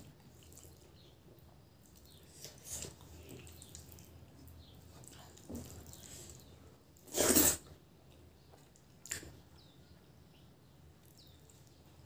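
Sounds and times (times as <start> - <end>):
wet slurp: 5.0 - 7.7
lips smacking: 9.0 - 9.4.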